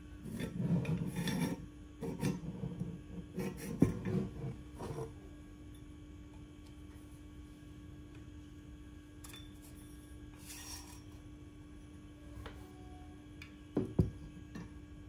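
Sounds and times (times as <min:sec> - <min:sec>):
steady low hum: 0:00.0 - 0:15.0
metal tube scraping: 0:00.2 - 0:05.1.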